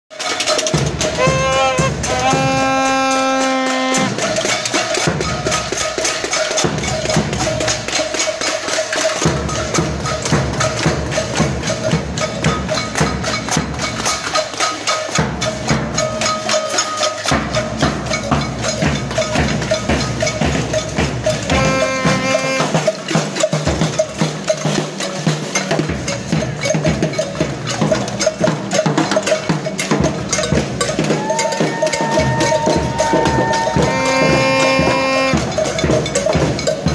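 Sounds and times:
cowbells and wood blocks knocking: 0.1s - 36.9s
crowd making noise: 0.1s - 36.9s
drum banging: 0.1s - 36.9s
held horn note: 1.0s - 4.5s, 21.5s - 23.0s, 32.4s - 35.8s.

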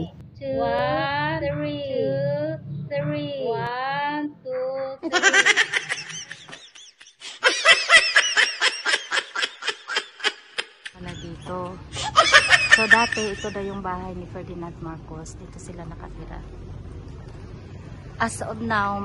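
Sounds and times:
high-pitched giggling laughter: 5.0s - 13.8s
low steady hum: 10.9s - 19.0s.

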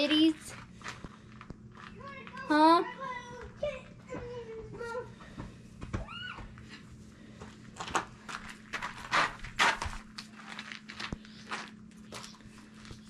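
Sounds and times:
steady low hum: 0.0s - 13.0s
footsteps on gravel: 7.4s - 13.0s.

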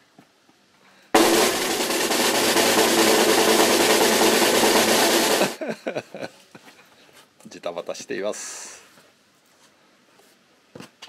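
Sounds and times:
snare drum roll: 1.2s - 5.6s.

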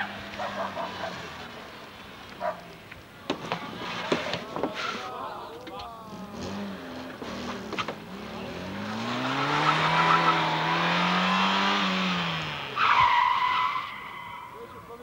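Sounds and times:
car engine revving: 6.1s - 14.5s
tyres squealing: 12.8s - 14.8s.

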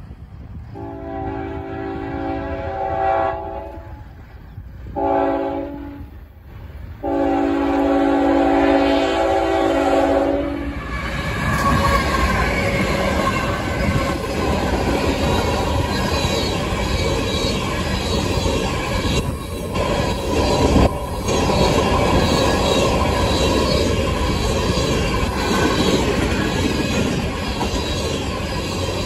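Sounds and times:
train wheels on rail: 0.0s - 29.0s
locomotive air horn: 0.8s - 4.1s, 5.0s - 6.1s, 7.0s - 10.9s.

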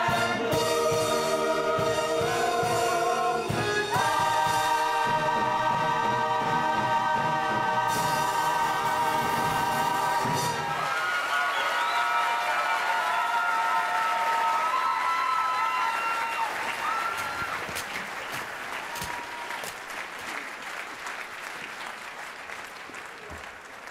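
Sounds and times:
audience applauding: 9.2s - 23.9s
audience cheering: 9.7s - 22.0s.

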